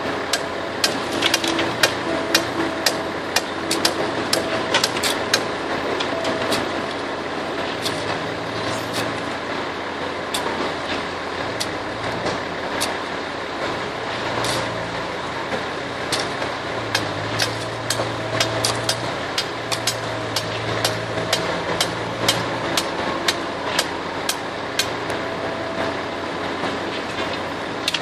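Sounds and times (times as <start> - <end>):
excavator diesel engine: 0.0 - 28.0
sharp clicks and knocks: 0.3 - 6.6, 16.1 - 25.0, 26.9 - 28.0.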